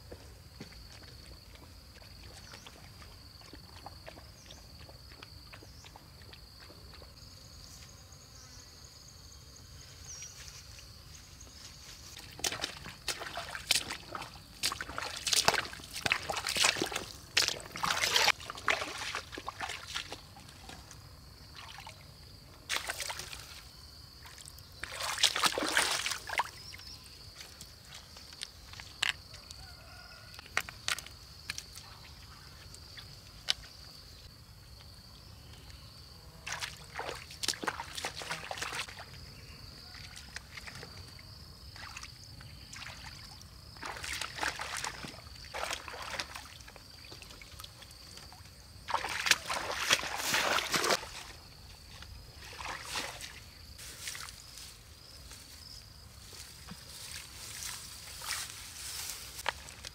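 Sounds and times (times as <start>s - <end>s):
boots sloshing through water: 12.1s - 22.0s, 22.7s - 23.6s, 24.2s - 26.8s, 36.5s - 39.2s, 41.7s - 54.6s.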